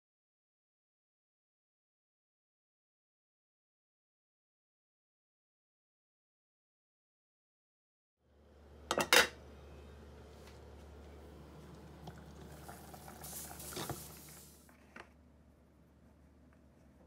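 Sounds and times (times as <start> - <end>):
glass lid clinking: 8.9 - 9.4
pot boiling bubbling: 9.4 - 14.7
steam hissing: 12.5 - 14.6.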